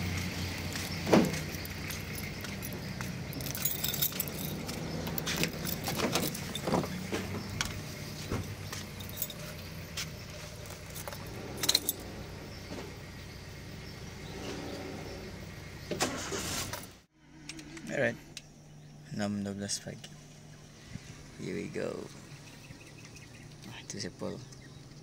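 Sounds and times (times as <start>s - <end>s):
low engine hum: 0.0s - 25.0s
keys jangling: 1.2s - 7.0s, 8.5s - 12.6s.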